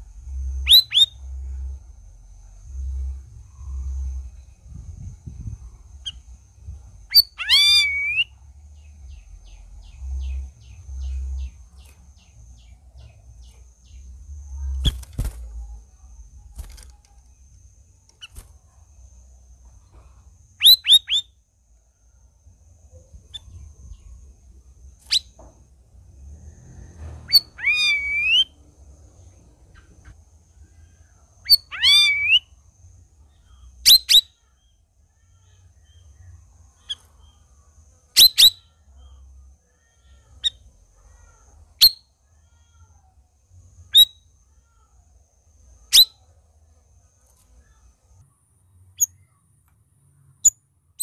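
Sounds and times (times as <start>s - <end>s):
low rumble: 0.0s - 7.1s
bird singing whistled phrases: 0.6s - 1.2s, 7.1s - 8.3s, 20.6s - 21.3s, 27.3s - 28.6s, 31.5s - 32.5s, 33.8s - 34.4s, 38.2s - 38.6s.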